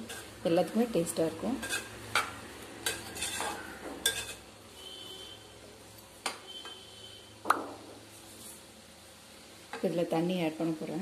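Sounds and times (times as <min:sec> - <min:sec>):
spoon scraping and clinking a pot: 0:01.6 - 0:04.5.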